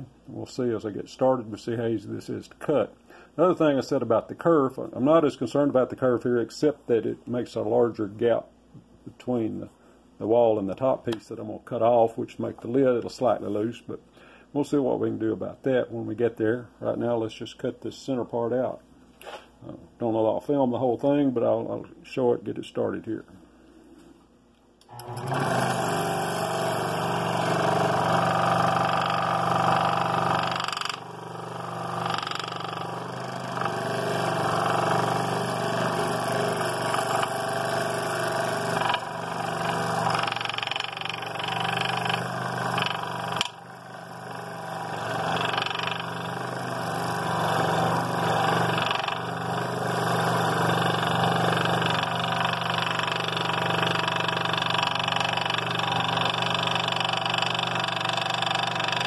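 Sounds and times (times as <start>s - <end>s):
scroll saw cutting wood: 24.9s - 59.0s.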